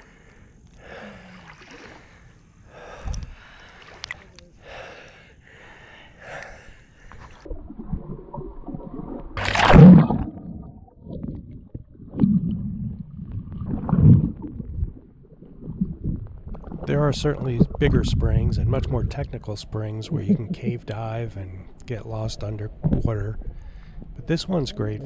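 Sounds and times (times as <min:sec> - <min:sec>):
water sloshing against camera: 0:01.3 - 0:04.6, 0:06.5 - 0:25.0
rush of water: 0:07.4 - 0:10.6
muffled underwater rumbling: 0:07.4 - 0:25.0.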